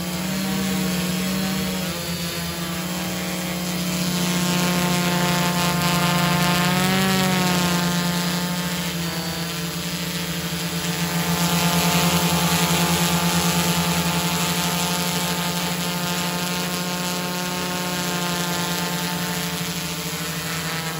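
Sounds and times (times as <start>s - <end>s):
drone propellers buzzing: 0.0s - 20.9s.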